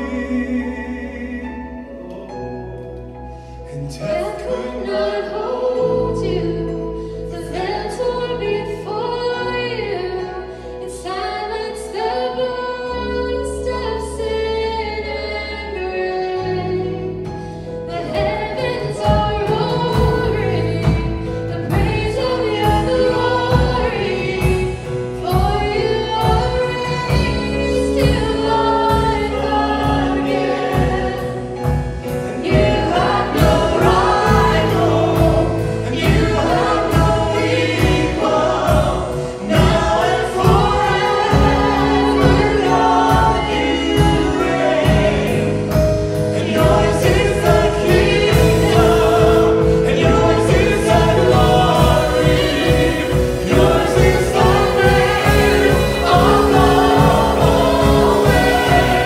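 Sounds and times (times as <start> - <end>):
group of voices singing: 0.0 - 2.7, 3.4 - 59.0
steady beat: 32.6 - 59.0.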